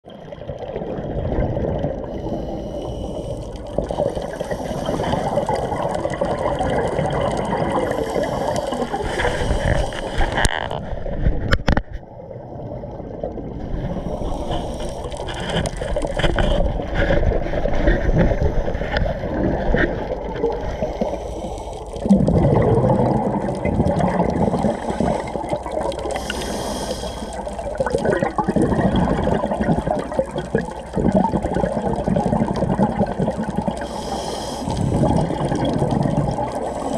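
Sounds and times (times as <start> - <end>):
bubbles gurgling underwater: 0.0 - 36.9
regulator breathing: 2.1 - 5.6, 7.8 - 10.8, 14.0 - 16.5, 20.7 - 22.0, 24.3 - 27.8, 33.8 - 35.4, 36.4 - 36.9.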